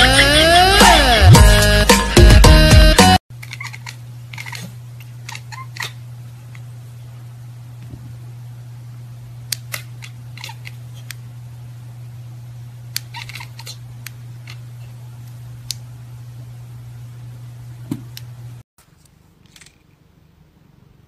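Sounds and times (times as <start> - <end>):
steady low hum: 3.4 - 19.2.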